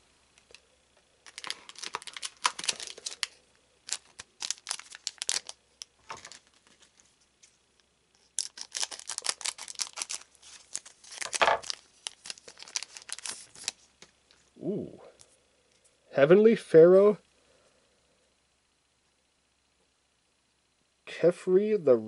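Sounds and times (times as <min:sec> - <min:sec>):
foil pack tearing open: 0:01.2 - 0:06.9, 0:08.3 - 0:13.8
foil card pack crinkling: 0:01.2 - 0:07.2, 0:08.2 - 0:14.1.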